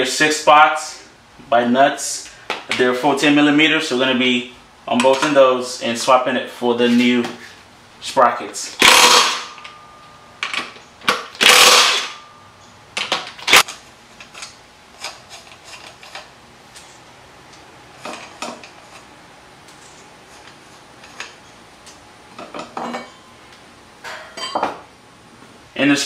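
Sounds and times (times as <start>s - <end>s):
cordless power wrench spinning: 8.8s - 9.6s, 11.4s - 12.2s.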